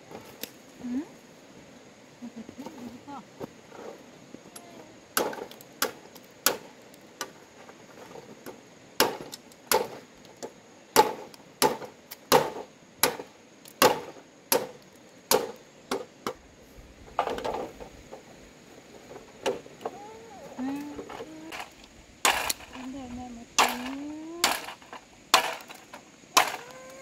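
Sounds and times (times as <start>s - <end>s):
blade chopping bamboo: 5.2s - 6.7s, 9.0s - 10.0s, 10.9s - 16.1s, 22.2s - 22.8s, 23.6s - 26.8s.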